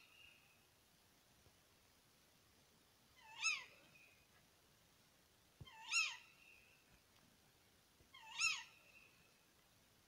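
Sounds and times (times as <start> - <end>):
owl contact calls: 3.2 - 4.1, 5.6 - 6.6, 8.1 - 9.0.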